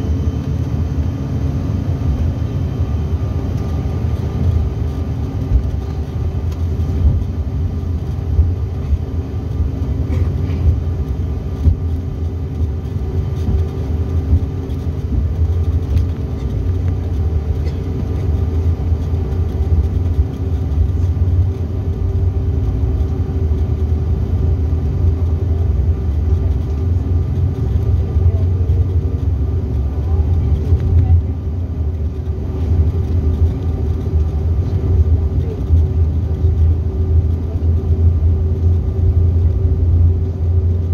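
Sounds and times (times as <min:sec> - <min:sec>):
jet cabin rumble: 0:00.0 - 0:40.9
turbofan hum: 0:00.0 - 0:40.9.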